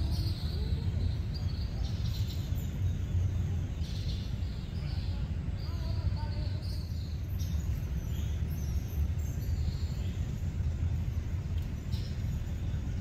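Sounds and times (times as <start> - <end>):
faint bird chirps: 0.0 - 13.0
low outdoor rumble: 0.0 - 13.0.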